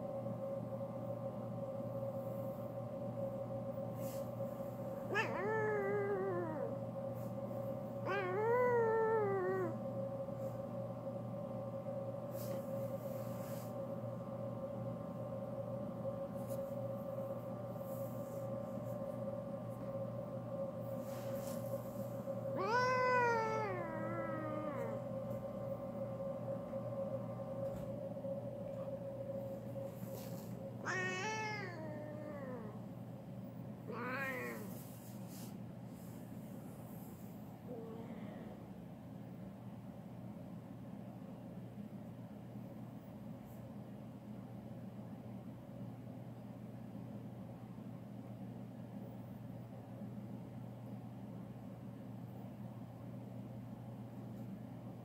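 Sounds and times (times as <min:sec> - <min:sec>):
low hum: 0:00.0 - 0:55.0
cat meowing: 0:05.1 - 0:06.7, 0:08.0 - 0:09.8, 0:22.6 - 0:25.0, 0:30.8 - 0:32.8, 0:33.9 - 0:34.8.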